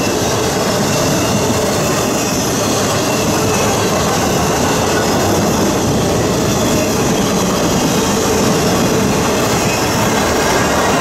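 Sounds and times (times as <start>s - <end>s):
steel wheels on rails: 0.0s - 11.0s.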